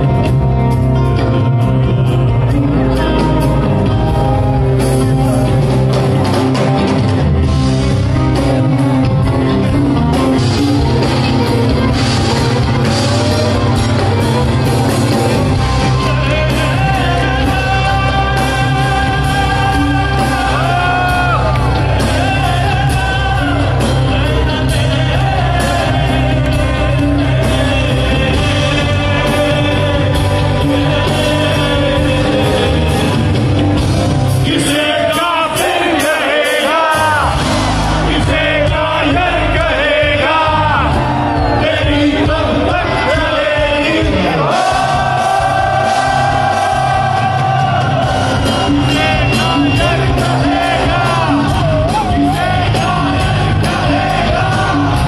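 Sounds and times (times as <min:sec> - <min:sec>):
electric guitar: 0:00.0 - 0:34.6
bass guitar: 0:00.0 - 0:55.0
drums: 0:00.0 - 0:55.0
man singing: 0:15.3 - 0:33.6, 0:34.3 - 0:55.0.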